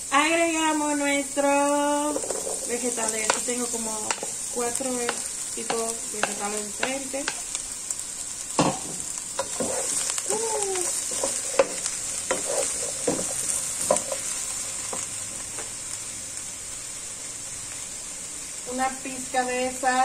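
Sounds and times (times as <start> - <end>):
vegetables sizzling in oil: 0.0 - 20.0
wooden spatula scraping a pan: 2.1 - 4.4, 9.4 - 15.1.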